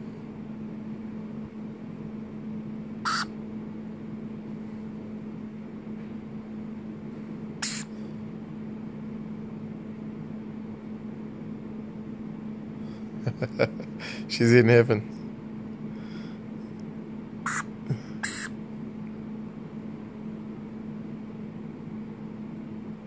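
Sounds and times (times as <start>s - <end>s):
low background hum: 0.0s - 23.0s
lorikeet screeches: 3.1s - 3.3s, 7.6s - 7.9s, 17.5s - 18.6s.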